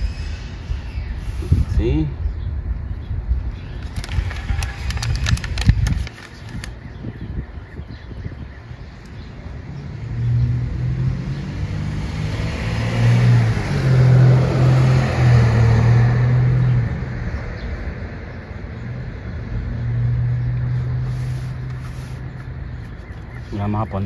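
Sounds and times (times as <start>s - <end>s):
vehicle passing by: 9.5s - 22.4s.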